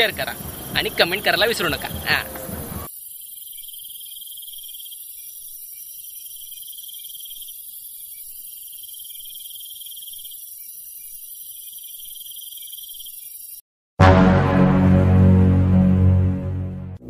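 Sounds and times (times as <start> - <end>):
crickets trilling: 0.0 - 13.6.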